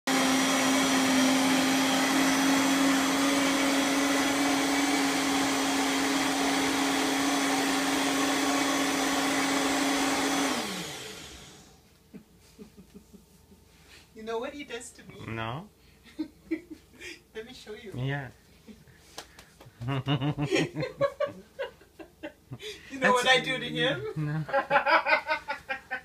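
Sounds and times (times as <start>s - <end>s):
blender motor running: 0.0s - 11.8s
blender motor spinning down: 0.1s - 11.8s.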